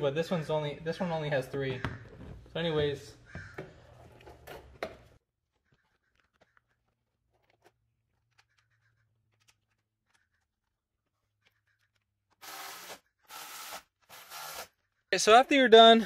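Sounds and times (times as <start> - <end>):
power screwdriver whirring: 12.4 - 14.7.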